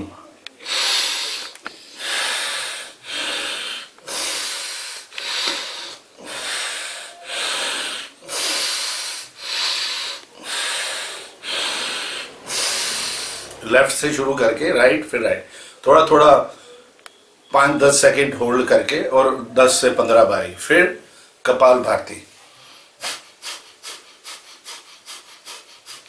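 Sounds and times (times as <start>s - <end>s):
steady breathing through nose: 0.6s - 13.7s, 15.5s - 15.8s, 22.4s - 26.0s.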